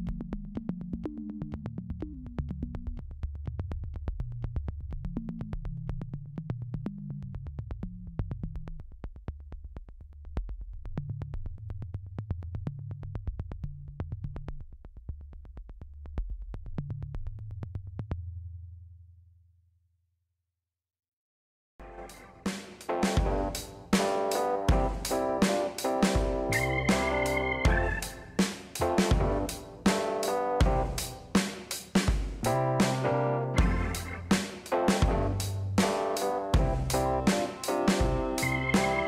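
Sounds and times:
synthesizer bass line: 21.8s - 31.2s, 32.4s - 39.0s
fast ticking beat: 22.0s - 33.0s, 33.6s - 39.0s.

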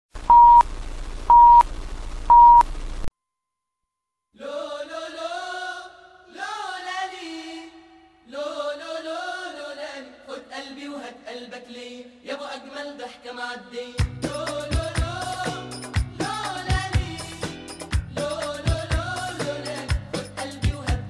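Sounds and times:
television static hiss: 0.2s - 3.1s
chant-like singing: 4.4s - 21.0s.

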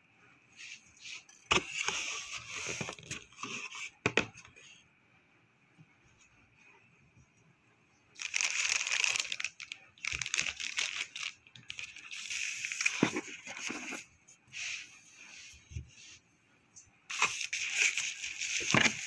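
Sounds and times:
plastic wrapping crinkling: 8.2s - 14.0s, 17.1s - 19.0s.

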